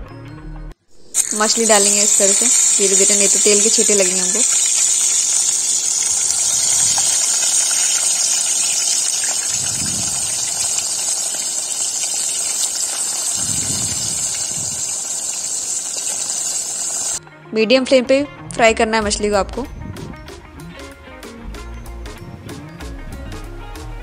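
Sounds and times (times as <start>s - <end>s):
fish sizzling in hot oil: 1.0s - 17.2s.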